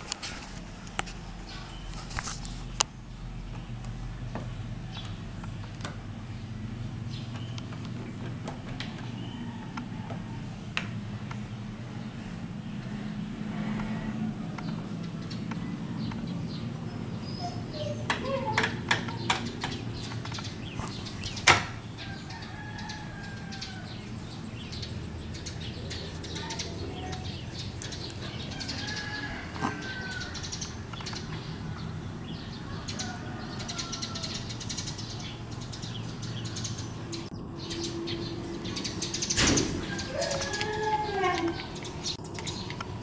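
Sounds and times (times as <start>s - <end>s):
steady low hum: 0.0s - 18.2s
bird calls and chirps: 13.8s - 43.0s.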